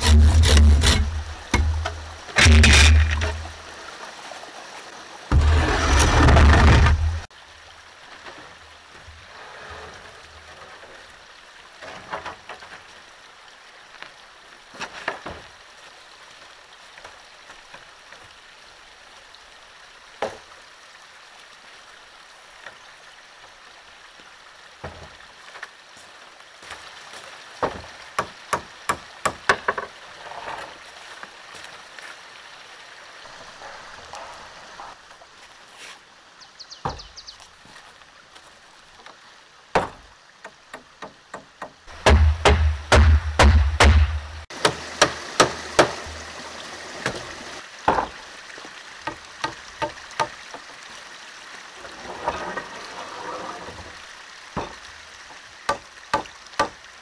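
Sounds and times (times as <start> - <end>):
stream running: 0.0 - 57.0
wooden knocks: 27.6 - 29.9.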